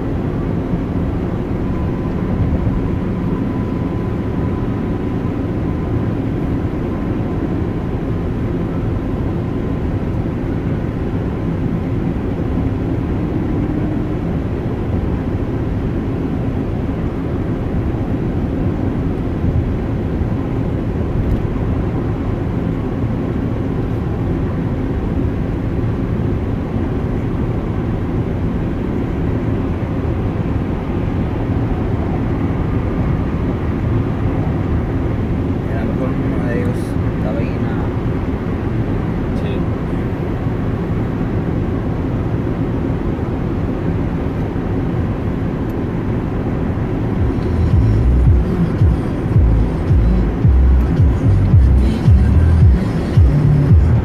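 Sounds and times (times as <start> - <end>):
car engine drone: 0.0 - 54.0.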